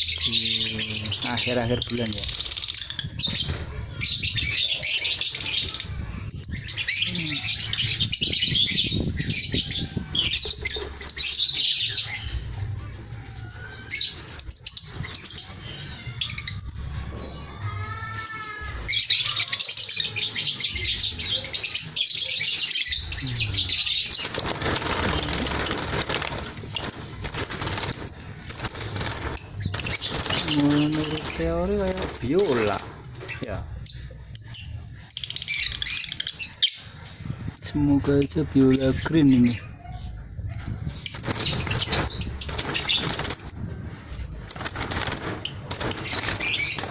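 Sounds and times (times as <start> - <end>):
lovebirds chirping: 0.0 - 46.9.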